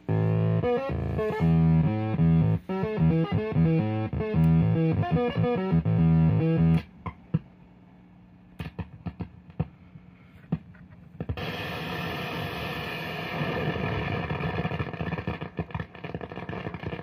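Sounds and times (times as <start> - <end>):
stuttering pitched tones: 0.0 - 6.9.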